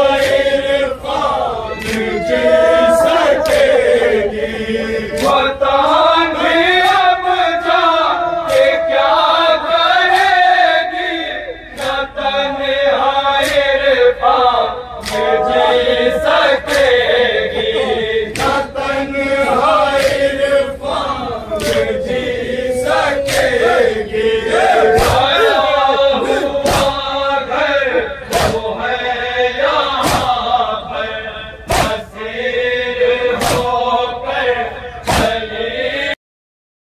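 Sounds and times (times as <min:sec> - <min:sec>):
men chanting in unison: 0:00.0 - 0:36.2
hand slaps on chest: 0:18.3 - 0:18.6, 0:26.7 - 0:27.0, 0:28.3 - 0:28.6, 0:30.0 - 0:30.4, 0:31.7 - 0:32.0, 0:33.4 - 0:33.7, 0:35.1 - 0:35.4.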